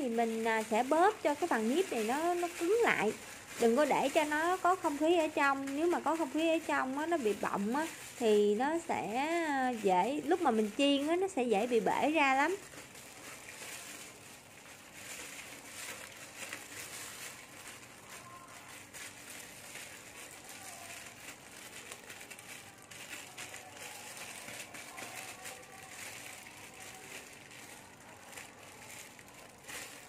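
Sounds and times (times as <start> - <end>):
plastic film crinkling: 0.0 - 30.0.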